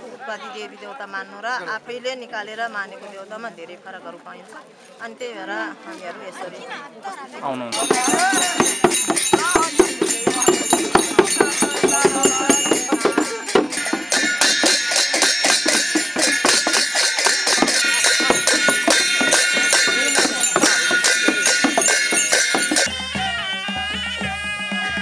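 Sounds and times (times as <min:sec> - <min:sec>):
bells jingling: 0:07.7 - 0:22.9
hand cymbals clashing: 0:07.7 - 0:22.9
frame drums beaten fast: 0:07.7 - 0:24.6
reed pipe and drums band: 0:07.7 - 0:25.0.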